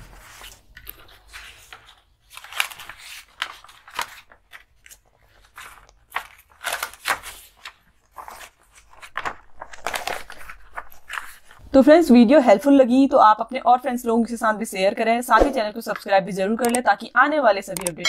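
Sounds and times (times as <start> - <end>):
paper rustling and crinkling: 0.0 - 11.7.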